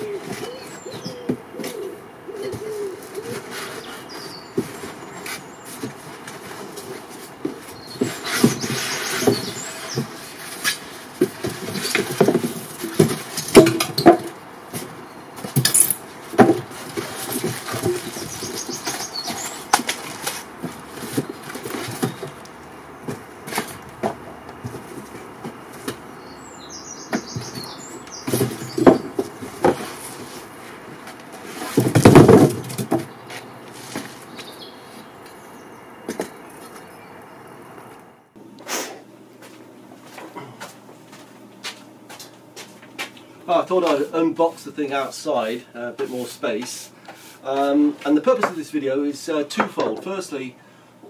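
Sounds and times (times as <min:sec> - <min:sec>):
cardboard and packing rustling: 0:00.0 - 0:26.4, 0:27.1 - 0:35.1
knocks and thumps: 0:07.4 - 0:26.1, 0:27.1 - 0:34.5.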